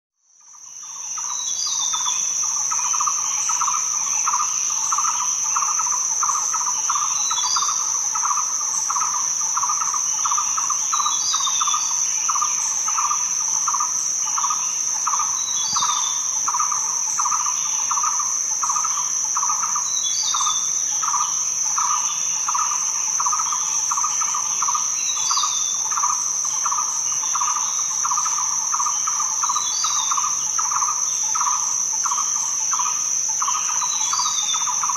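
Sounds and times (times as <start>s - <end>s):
high insect drone: 0.2s - 34.9s
pulsing insect chirr: 0.4s - 34.9s.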